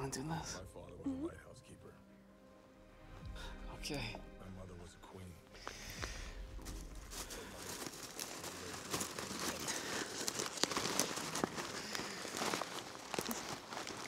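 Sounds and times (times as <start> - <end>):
hand rummaging through popcorn: 7.1 - 14.0.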